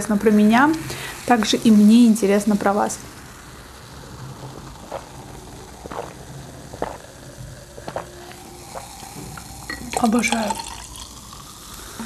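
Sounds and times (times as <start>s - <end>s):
steady low hiss: 0.0s - 12.0s
person gulping drink: 4.5s - 12.0s.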